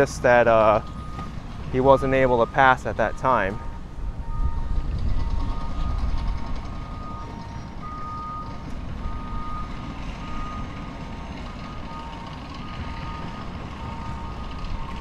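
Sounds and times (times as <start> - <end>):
steady low rumble: 0.2 - 11.0
lower reversing alarm beeping: 0.6 - 15.0
higher reversing alarm beeping: 0.7 - 10.9, 11.5 - 15.0.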